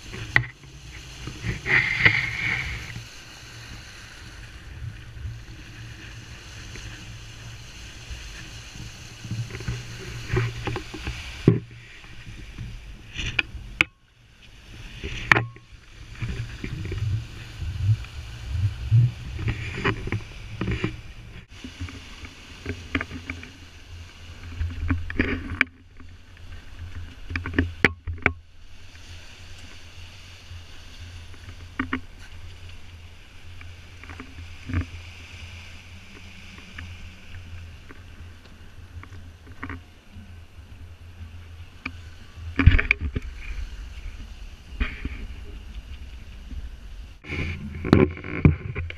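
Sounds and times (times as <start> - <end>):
water rushing along hull: 0.0 - 48.9
wind rumbling on microphone: 0.0 - 48.9.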